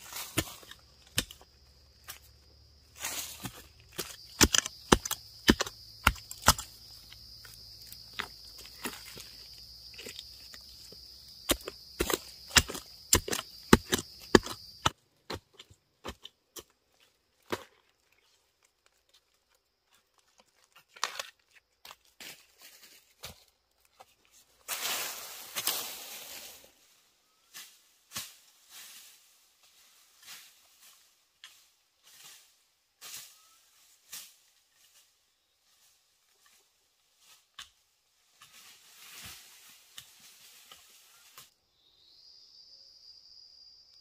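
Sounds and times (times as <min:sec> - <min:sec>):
sharp knocks and chops: 0:03.4 - 0:06.8, 0:11.4 - 0:16.3.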